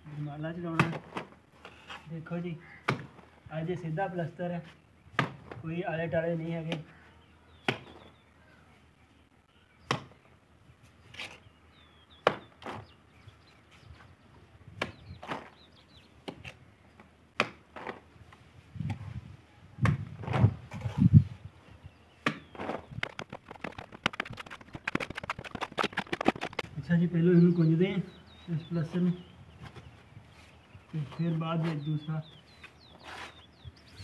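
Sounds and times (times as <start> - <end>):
trowel clinking and slapping mortar: 23.0 - 26.6.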